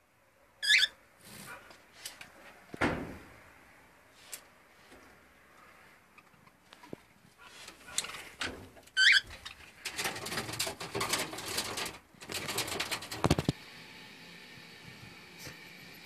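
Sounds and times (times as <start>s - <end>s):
parrots chattering: 0.6s - 1.0s.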